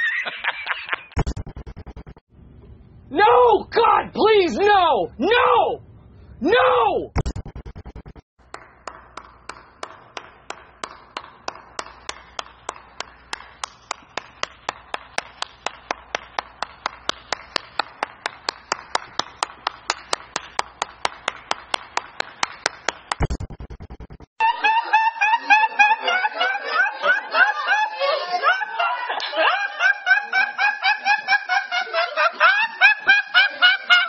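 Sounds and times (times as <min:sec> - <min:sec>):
fast run of clicks: 0:01.2 - 0:02.2, 0:07.2 - 0:08.2, 0:22.2 - 0:24.3
steady sharp ticks: 0:07.2 - 0:10.6, 0:23.1 - 0:24.3.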